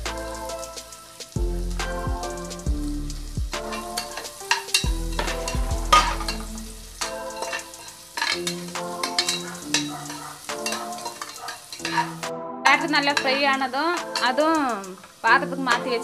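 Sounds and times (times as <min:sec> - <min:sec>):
background music: 0:00.0 - 0:16.0
carrots frying: 0:00.0 - 0:16.0
metal ladle scraping pot: 0:03.7 - 0:06.6, 0:07.3 - 0:12.2.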